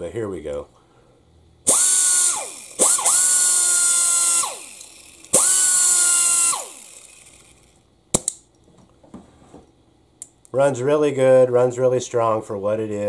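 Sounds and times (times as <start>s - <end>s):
air die grinder whining: 1.7s - 7.7s.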